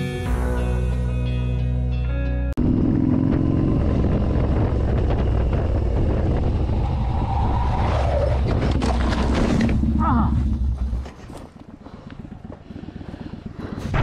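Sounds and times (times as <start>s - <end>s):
motorcycle engine running: 2.6s - 6.9s, 9.2s - 14.0s
wind noise: 2.7s - 14.0s
motorcycle crashing and scraping: 8.0s - 10.0s.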